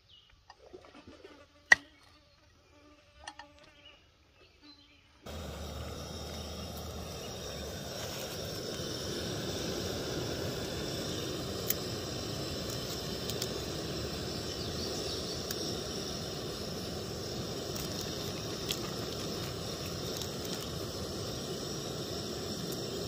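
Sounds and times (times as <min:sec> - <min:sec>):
gas stove burning hiss: 0:05.2 - 0:23.0.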